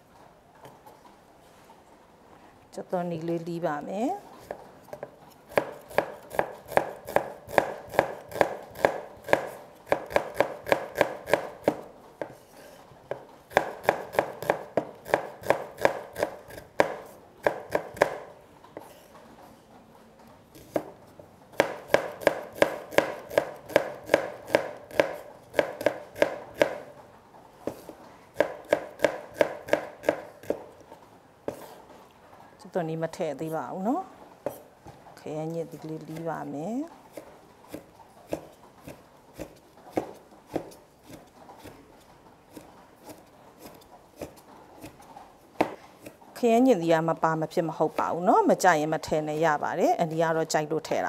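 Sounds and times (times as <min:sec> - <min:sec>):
knife chopping on wooden board: 0:04.4 - 0:19.0, 0:21.6 - 0:26.9, 0:27.7 - 0:30.8, 0:37.1 - 0:41.9, 0:42.5 - 0:46.2.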